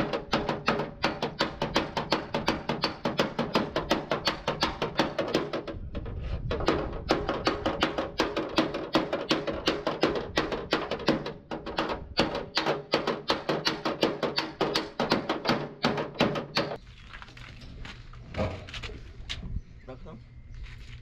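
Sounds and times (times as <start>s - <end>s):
hammer blows on sheet steel: 6.5s - 16.8s.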